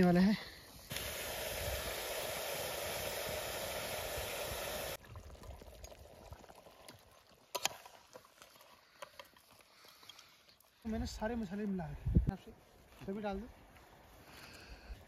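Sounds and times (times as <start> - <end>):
food sizzling in a pressure cooker: 0.9 - 5.0.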